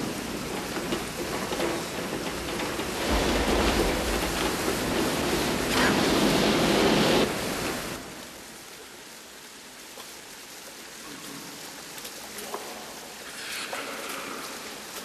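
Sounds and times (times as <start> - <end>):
water trickling in a tunnel: 0.0 - 15.0
flamethrower whoosh: 3.0 - 8.3.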